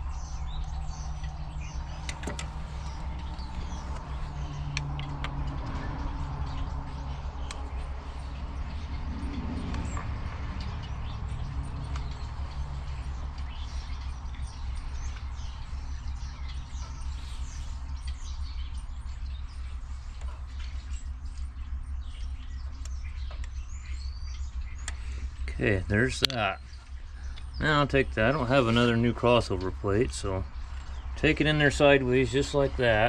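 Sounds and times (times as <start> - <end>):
birds chirping: 0.0 - 33.0
steady low hum: 0.0 - 33.0
faint clicks: 7.4 - 7.8, 24.7 - 25.3.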